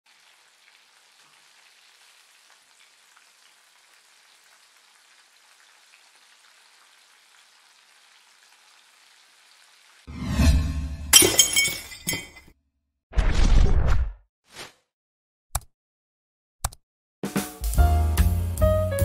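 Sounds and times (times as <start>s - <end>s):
oil deep-frying hiss and pops: 0.1s - 10.1s.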